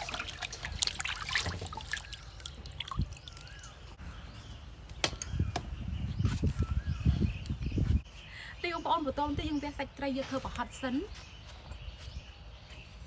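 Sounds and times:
water dripping and splashing: 0.0s - 4.0s.

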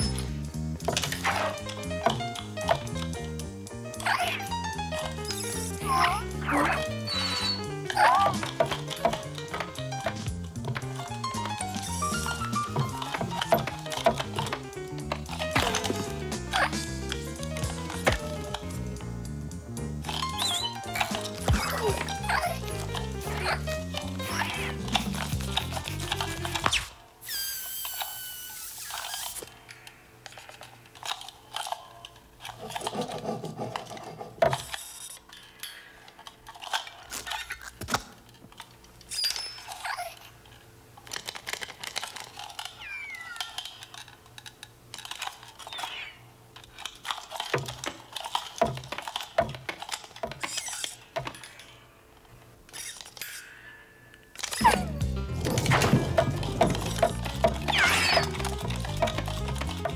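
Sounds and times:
cartoon squeaks: 0.0s - 0.3s, 3.9s - 9.8s, 15.4s - 16.8s, 20.1s - 25.2s, 26.3s - 29.5s, 37.1s - 37.7s, 39.1s - 40.3s, 42.7s - 43.8s, 45.6s - 46.3s, 50.4s - 51.0s, 52.7s - 53.4s, 54.4s - 55.2s, 57.6s - 58.5s
hiss with squeaky whistles: 5.2s - 8.3s, 20.3s - 20.8s, 26.8s - 29.6s, 39.1s - 40.2s, 42.8s - 43.6s.

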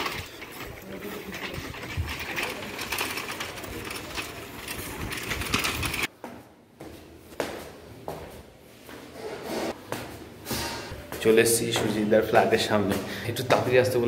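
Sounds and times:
bicycle rattling and ticking: 0.0s - 6.1s.

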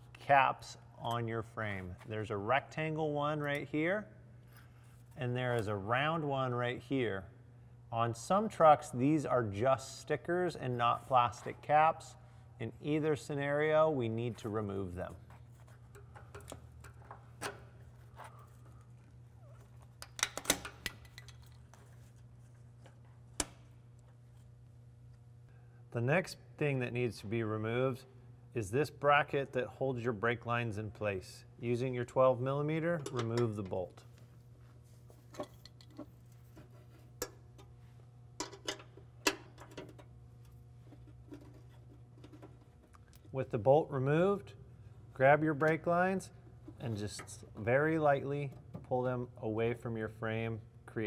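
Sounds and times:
steady low hum: 0.0s - 51.0s.

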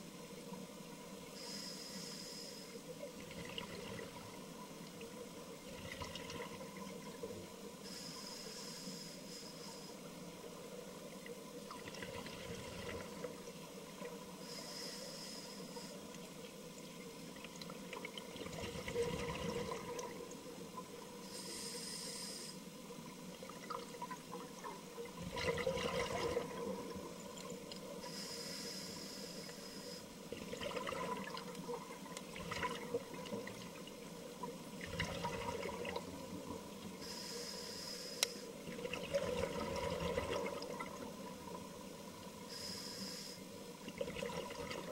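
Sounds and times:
regulator hiss on inhale: 1.2s - 3.0s, 7.6s - 11.1s, 13.3s - 16.3s, 21.1s - 23.0s, 27.9s - 30.3s, 36.9s - 38.6s, 42.3s - 43.8s
exhaust bubbles gurgling: 17.9s - 20.2s, 23.5s - 27.1s, 30.3s - 33.7s, 34.8s - 36.5s, 38.6s - 41.3s, 43.9s - 44.9s.

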